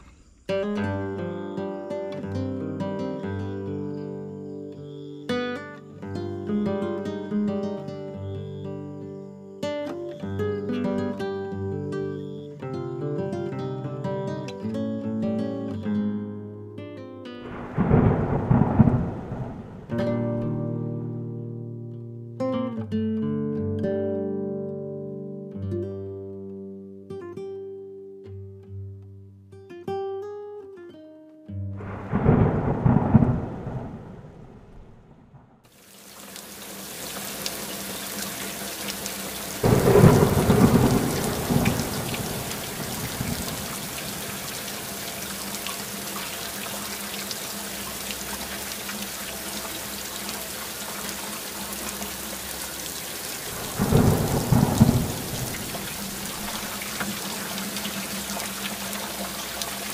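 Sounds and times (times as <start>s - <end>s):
plucked guitar music: 0.5s - 33.4s
steady rain: 17.4s - 20.8s, 31.8s - 59.9s
thunder rumbling: 17.5s - 20.6s, 31.8s - 35.6s, 39.2s - 45.5s, 52.9s - 59.4s.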